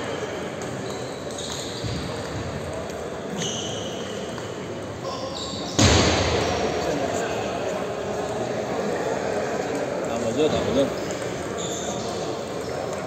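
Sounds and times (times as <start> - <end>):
din of busy sports hall: 0.0 - 13.0
table tennis balls clicking: 9.8 - 13.0.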